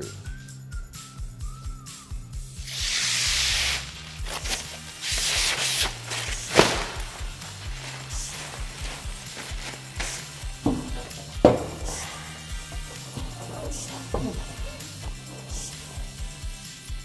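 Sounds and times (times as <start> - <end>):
background music with beat: 0.0 - 17.0
plastic film peeling: 2.6 - 11.9.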